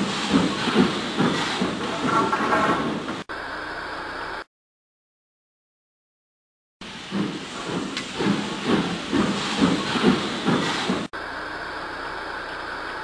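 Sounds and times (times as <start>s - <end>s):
steam hiss: 0.0s - 2.1s, 6.8s - 11.1s
model steam locomotive chuffing: 0.0s - 4.4s, 6.8s - 13.0s.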